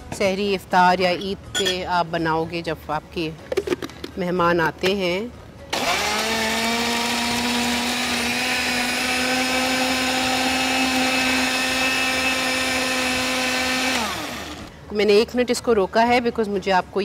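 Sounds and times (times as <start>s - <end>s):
blender motor whine: 5.7s - 14.7s.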